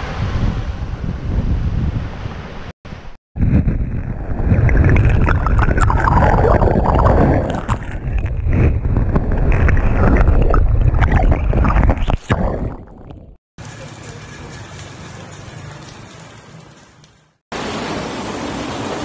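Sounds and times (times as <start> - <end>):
crackles of water through rubble: 4.0 - 17.2.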